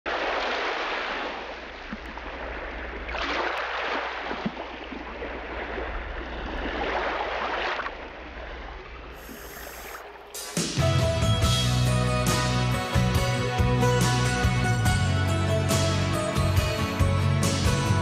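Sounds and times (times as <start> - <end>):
rushing water: 0.1 - 18.0.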